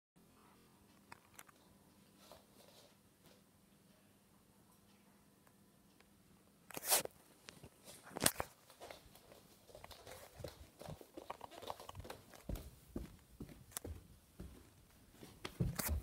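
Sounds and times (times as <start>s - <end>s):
footsteps on wooden floor: 8.7s - 16.0s.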